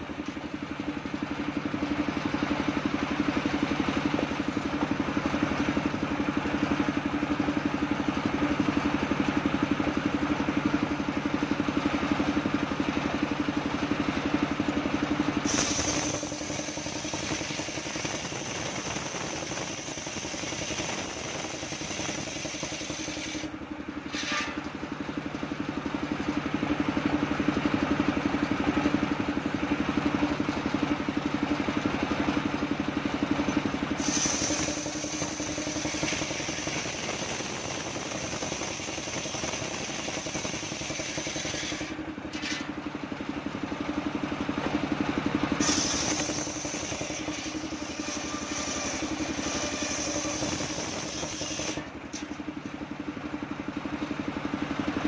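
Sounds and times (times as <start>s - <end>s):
saw drive running: 0.1s - 25.0s, 30.6s - 42.9s, 45.6s - 52.9s
circular saw cutting wood: 15.4s - 23.5s, 24.1s - 24.7s, 33.9s - 42.7s, 45.6s - 52.4s.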